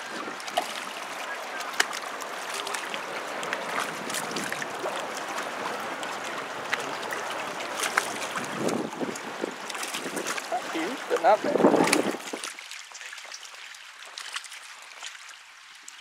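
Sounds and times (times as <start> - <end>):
water lapping and splashing: 0.0 - 16.0
wind buffeting microphone: 2.2 - 12.5.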